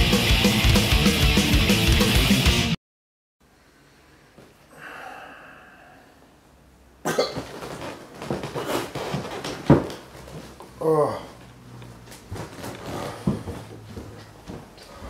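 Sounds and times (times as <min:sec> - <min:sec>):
man breathing hard: 0:04.7 - 0:06.4, 0:12.8 - 0:13.7, 0:14.8 - 0:15.0
man coughing: 0:07.0 - 0:07.5.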